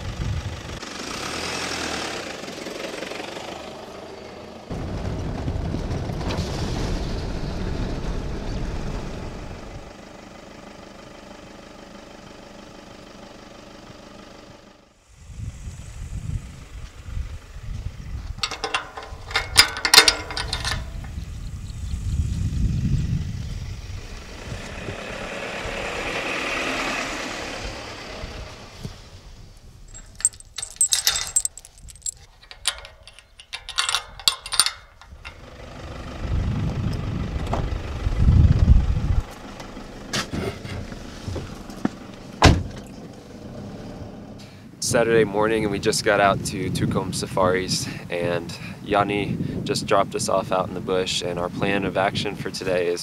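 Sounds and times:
low vehicle rumble: 2.3s - 11.6s, 13.9s - 44.8s
hiss: 15.1s - 16.7s
metal gate clinking and rattling: 18.4s - 21.2s, 29.9s - 35.6s.

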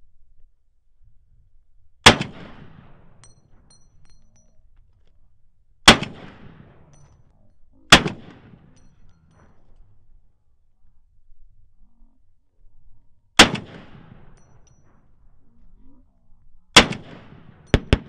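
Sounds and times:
rifle shots with echo: 2.0s - 3.2s, 5.8s - 6.9s, 7.9s - 8.8s, 13.4s - 14.4s, 16.8s - 18.0s.

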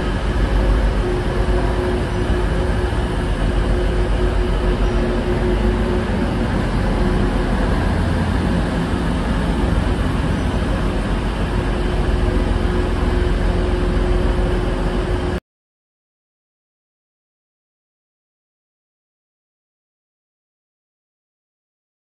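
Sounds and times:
diesel train engine rumbling: 0.0s - 15.4s.

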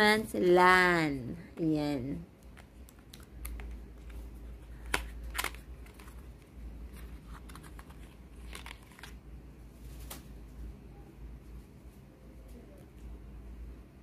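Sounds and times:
paper rustling: 3.1s - 9.2s.

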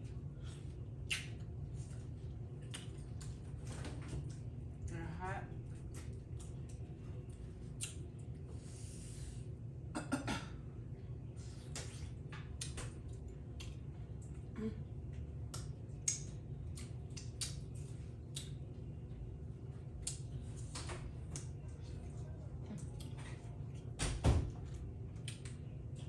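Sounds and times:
steady low hum: 0.0s - 26.0s
person chewing: 0.4s - 3.5s, 5.9s - 8.5s, 11.8s - 14.5s, 15.1s - 18.8s.

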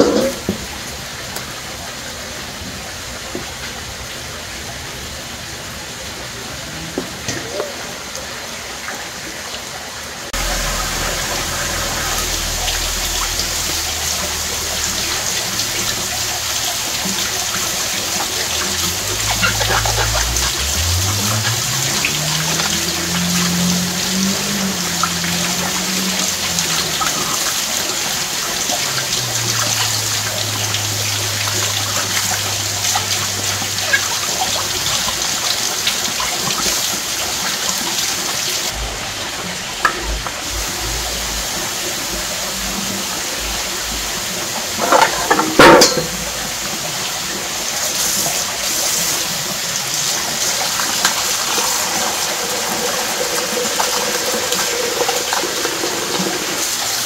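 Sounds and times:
clatter in a sink: 0.0s - 0.7s, 44.8s - 46.4s
tap water running into a sink: 0.0s - 1.5s, 10.4s - 57.0s.

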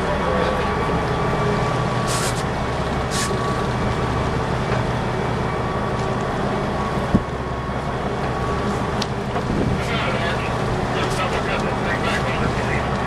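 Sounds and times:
boat engines droning: 0.0s - 13.0s
water and wind hiss: 1.9s - 4.5s
short hissing bursts: 2.1s - 2.4s.

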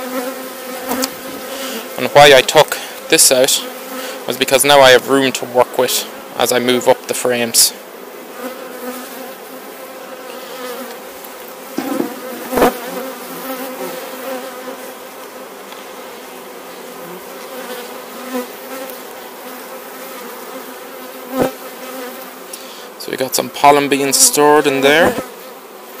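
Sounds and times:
bees buzzing: 0.0s - 26.0s
wooden knocks of hive frames: 11.7s - 13.6s.

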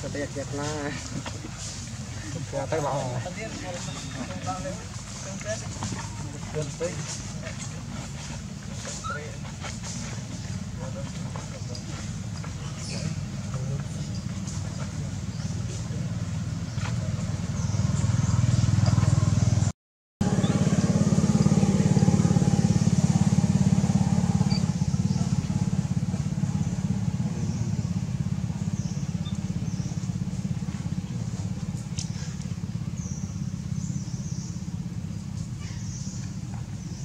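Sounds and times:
low motor engine drone: 0.0s - 37.0s.

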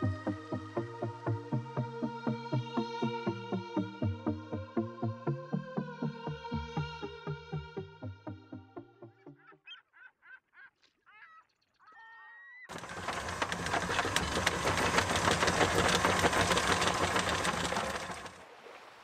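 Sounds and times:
loud rapid rattling clatter: 12.7s - 18.4s.

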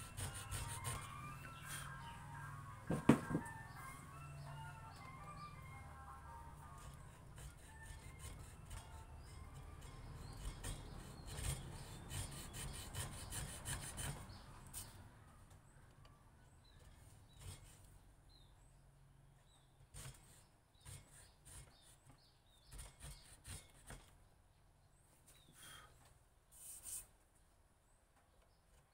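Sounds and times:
chisel scraping wood: 0.0s - 2.2s, 2.9s - 3.8s, 6.6s - 14.9s, 16.6s - 18.0s, 19.9s - 24.2s
chisel taps: 2.9s - 3.6s.

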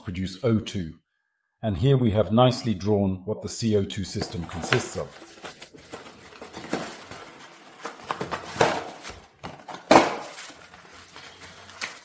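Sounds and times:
cardboard packaging rustling: 4.2s - 12.0s.

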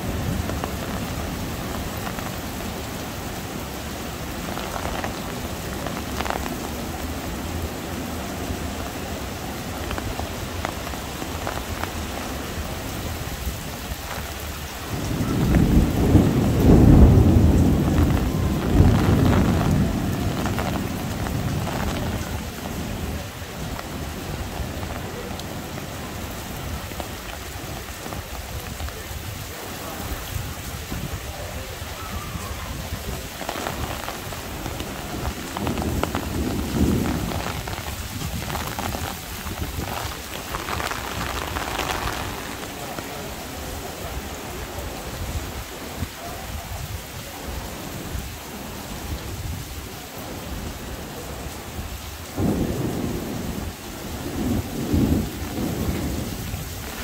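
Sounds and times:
heavy rain falling: 0.0s - 57.0s
thunder rolling: 13.7s - 29.0s, 29.9s - 43.3s, 52.4s - 57.0s.

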